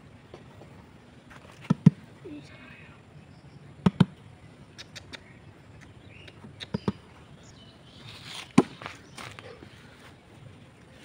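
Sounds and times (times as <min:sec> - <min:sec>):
sharp clicks: 0:03.8 - 0:07.0.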